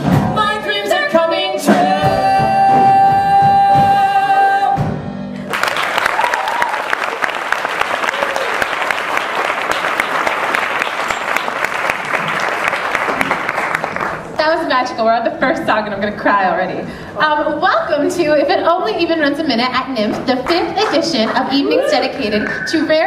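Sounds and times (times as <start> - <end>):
man and woman singing duet: 0.0 - 5.0
audience applause: 5.5 - 14.4.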